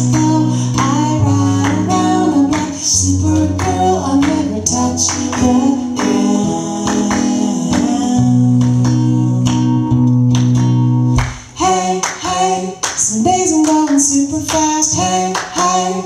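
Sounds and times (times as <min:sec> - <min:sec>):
person singing wordless notes: 0:00.0 - 0:10.1
acoustic guitar strumming: 0:00.0 - 0:16.0.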